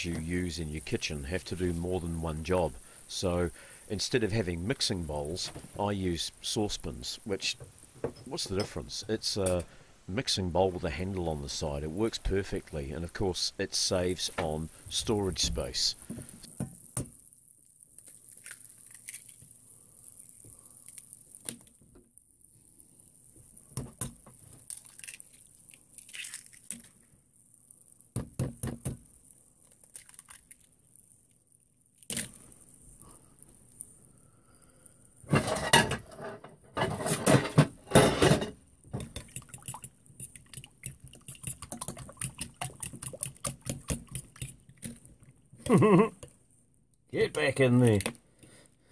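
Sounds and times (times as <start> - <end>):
eggs cracking on saucepan: 37.3 - 46.3.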